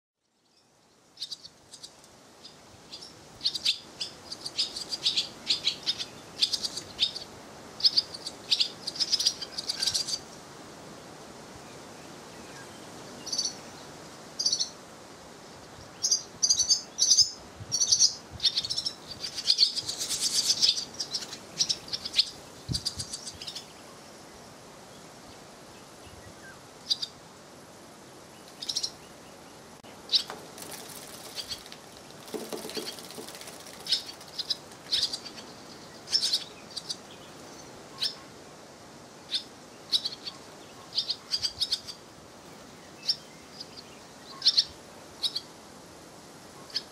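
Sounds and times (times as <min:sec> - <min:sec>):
swallows twittering: 0:01.2 - 0:10.4, 0:12.6 - 0:13.6, 0:14.4 - 0:14.8, 0:16.0 - 0:23.8, 0:28.6 - 0:29.1, 0:32.3 - 0:38.3, 0:39.3 - 0:45.5.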